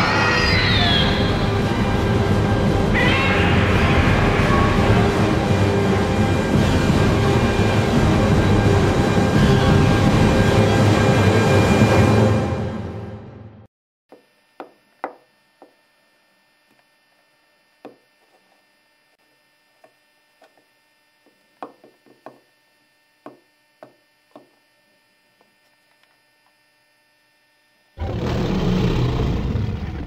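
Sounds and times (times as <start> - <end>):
toy figure knocking on hard surface: 14.1 - 15.8, 21.6 - 22.4, 23.2 - 24.5.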